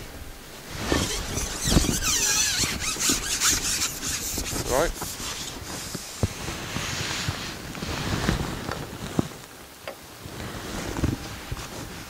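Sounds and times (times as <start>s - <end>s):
wind noise on microphone: 0.0s - 12.0s
hiss: 0.7s - 8.4s.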